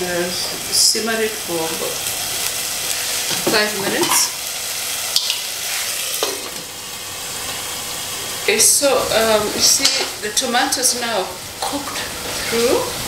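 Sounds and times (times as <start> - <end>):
tomatoes sizzling in hot oil: 0.0 - 13.0.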